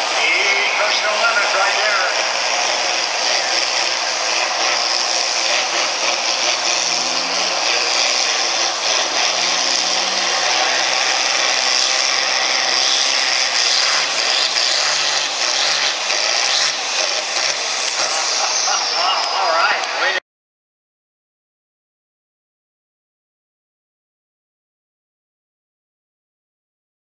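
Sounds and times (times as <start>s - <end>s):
tractor diesel engine running: 0.0s - 14.5s
high-pitched whine: 0.0s - 20.2s.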